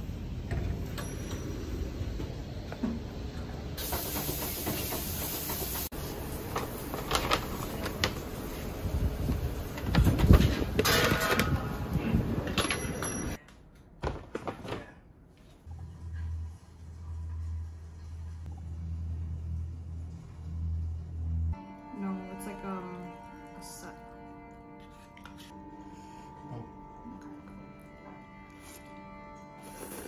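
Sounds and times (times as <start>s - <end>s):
paper bag rustling: 6.6s - 8.8s.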